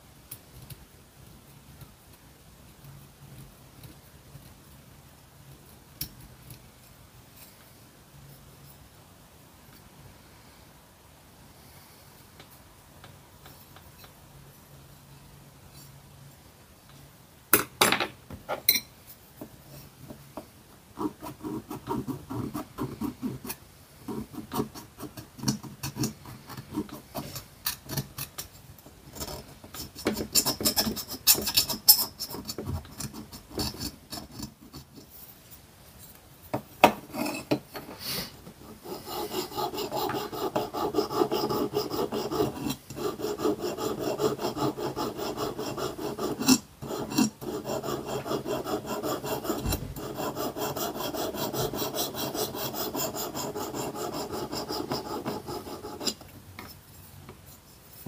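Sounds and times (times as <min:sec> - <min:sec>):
file rasping on metal: 0:29.2 - 0:34.6, 0:38.6 - 0:56.2.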